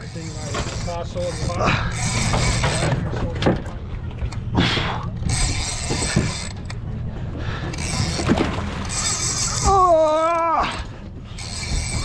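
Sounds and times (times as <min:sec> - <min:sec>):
fishing reel winding and ratcheting: 0:00.0 - 0:03.0, 0:05.2 - 0:06.8, 0:07.7 - 0:10.4, 0:11.3 - 0:12.0
boat engine humming: 0:00.0 - 0:12.0.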